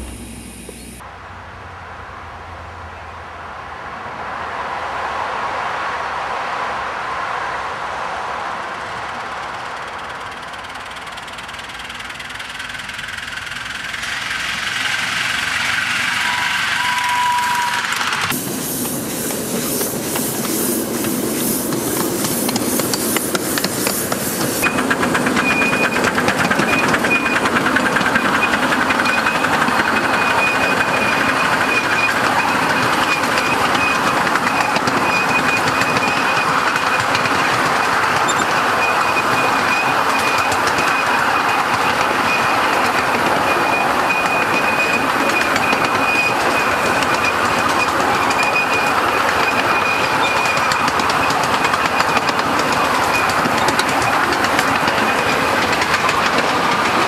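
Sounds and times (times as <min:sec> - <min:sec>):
steam locomotive beats: 0:00.0 - 0:01.1, 0:06.8 - 0:57.0
wheels clattering on rail: 0:08.7 - 0:57.0
thin high tone: 0:14.1 - 0:18.3.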